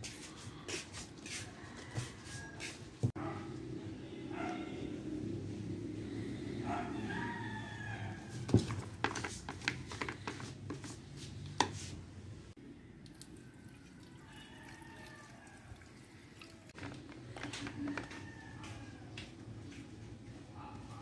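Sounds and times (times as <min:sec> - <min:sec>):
fuel trickling into tank: 0:12.8 - 0:17.4.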